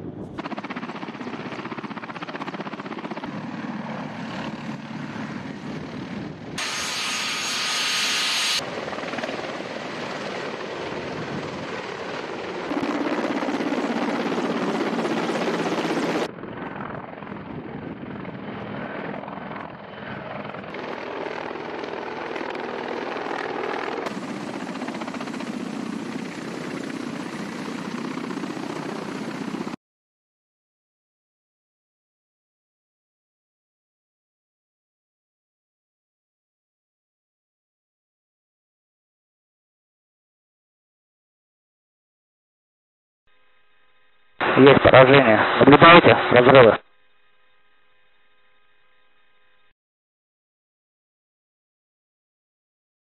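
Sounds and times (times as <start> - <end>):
helicopter turbine engines and rotors: 0.0 - 29.8.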